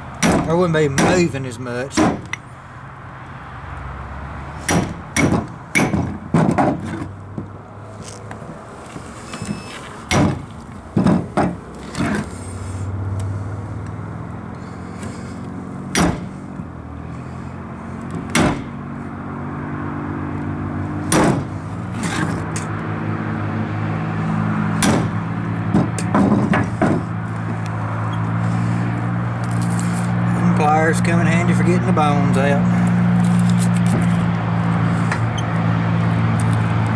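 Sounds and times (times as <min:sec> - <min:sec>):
hammer striking hatchet: 0:00.2 - 0:01.3, 0:02.0 - 0:02.3, 0:04.6 - 0:06.8, 0:15.9 - 0:16.3, 0:18.3 - 0:18.7, 0:21.1 - 0:21.5, 0:24.8 - 0:25.2.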